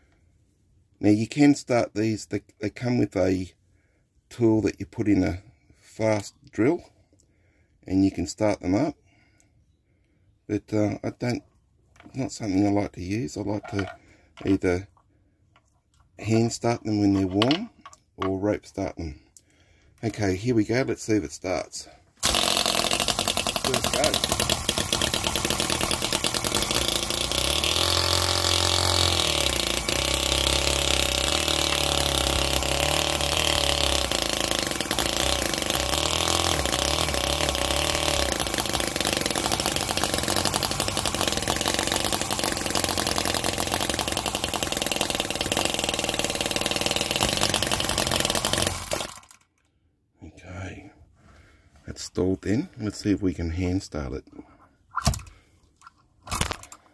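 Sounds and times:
model petrol engine running: 22.2 - 49.4
rope starter pull: 22.2 - 49.5, 56.2 - 56.9.

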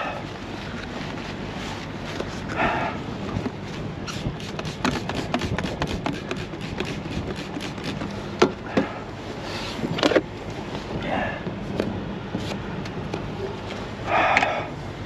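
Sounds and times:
spray bottle squirting: 4.1 - 8.1.

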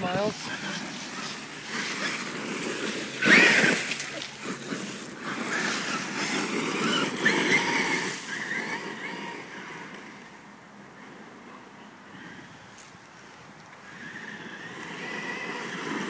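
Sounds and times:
electric motor whining: 0.0 - 10.3, 13.8 - 16.0
tires churning gravel: 0.0 - 16.0.

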